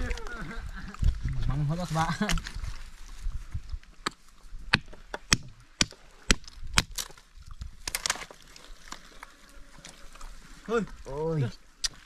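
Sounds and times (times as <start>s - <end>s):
seashell cracking: 5.2s - 9.3s.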